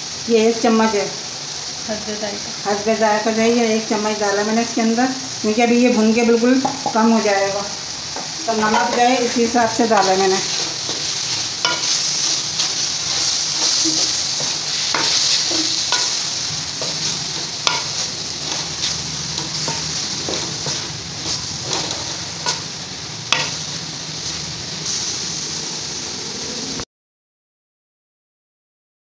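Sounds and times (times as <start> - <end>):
vegetables sizzling in a pan: 0.0 - 26.8
wooden spatula scraping and tapping pan: 16.8 - 22.7.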